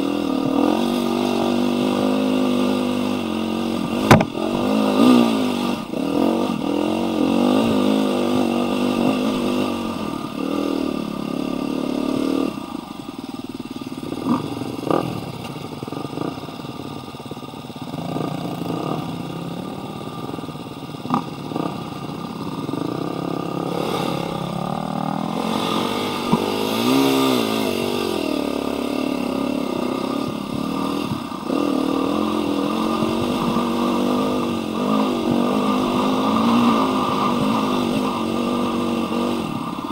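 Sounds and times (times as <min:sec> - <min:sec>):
dirt bike engine revving: 0:00.0 - 0:39.9
sharp knocks: 0:04.0 - 0:04.4.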